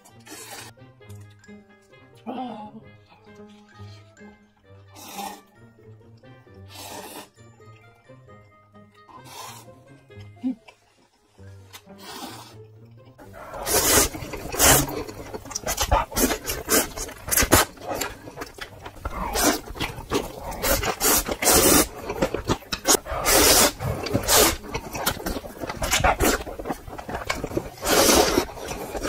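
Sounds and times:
slurping noodles: 0:00.0 - 0:00.7, 0:04.8 - 0:05.7, 0:06.5 - 0:07.7, 0:09.1 - 0:10.0, 0:11.4 - 0:29.0.

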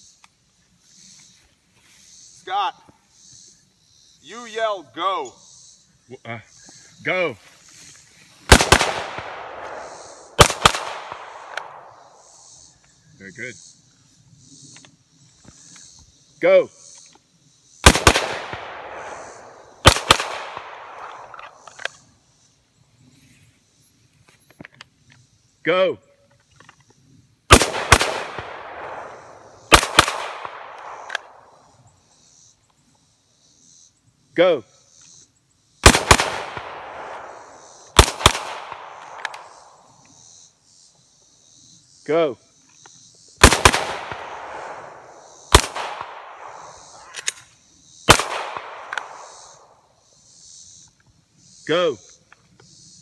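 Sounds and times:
faint sharp cracks: 0:08.5 - 0:12.0, 0:27.5 - 0:31.5, 0:35.8 - 0:40.1, 0:48.1 - 0:49.7
gunshot echo: 0:08.5 - 0:12.2, 0:17.8 - 0:21.7, 0:27.5 - 0:31.5, 0:35.8 - 0:39.8, 0:43.4 - 0:47.1, 0:48.1 - 0:49.7
pistol shots: 0:08.5 - 0:12.2, 0:17.8 - 0:21.7, 0:27.5 - 0:31.5, 0:35.8 - 0:39.8, 0:43.4 - 0:47.3, 0:48.1 - 0:49.8
rifle shots: 0:08.5 - 0:12.2, 0:17.8 - 0:21.8, 0:27.5 - 0:31.6, 0:35.8 - 0:39.8, 0:43.4 - 0:47.4, 0:48.0 - 0:49.8.

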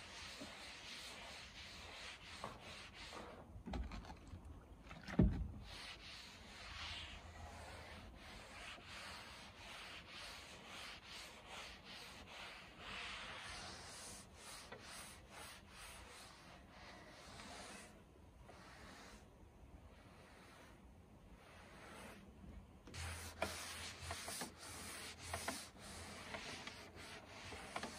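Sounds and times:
sponge scrubbing wet wood: 0:00.0 - 0:03.5, 0:05.6 - 0:18.0, 0:22.9 - 0:27.9.

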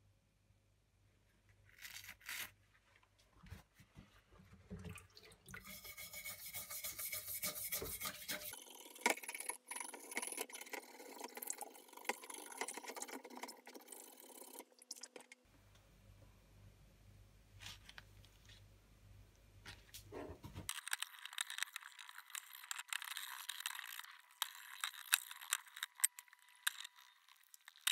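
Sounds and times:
brush scrubbing metal: 0:05.6 - 0:08.6.

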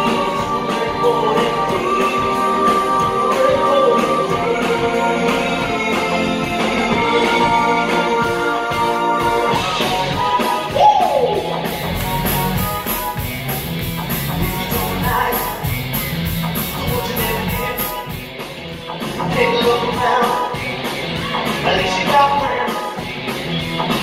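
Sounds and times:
man singing: 0:00.0 - 0:09.6, 0:14.6 - 0:15.7, 0:16.7 - 0:18.0, 0:19.2 - 0:20.7, 0:21.3 - 0:23.0
rock band playing: 0:00.0 - 0:24.0.

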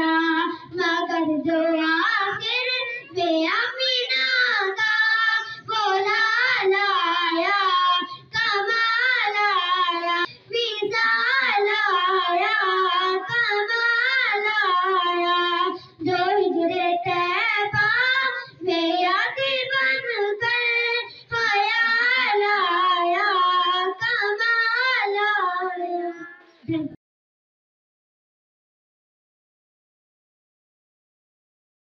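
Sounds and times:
girls singing unaccompanied: 0:00.0 - 0:26.9.

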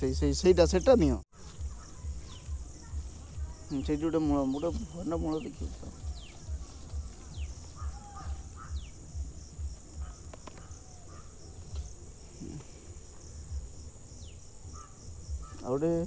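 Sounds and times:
low thumping rumble: 0:01.6 - 0:15.5
bird whistling: 0:03.8 - 0:09.0
sharp clicks of plants uprooted: 0:10.2 - 0:11.0.

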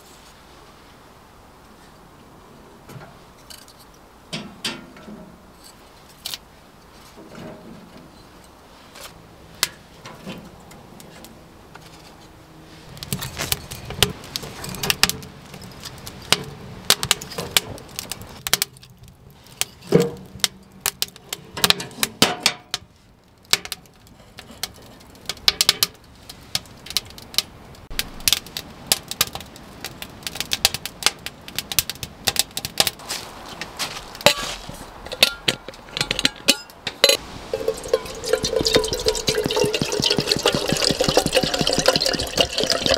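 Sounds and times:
wood fire crackling and popping: 0:12.9 - 0:36.4, 0:37.1 - 0:42.9.

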